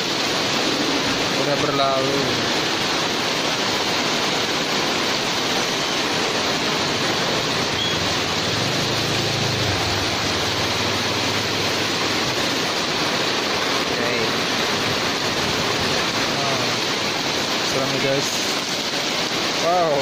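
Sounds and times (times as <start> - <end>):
heavy rain on awnings: 0.0 - 20.0
water pouring off awnings: 0.0 - 20.0
motorbike engine hum: 6.5 - 13.0.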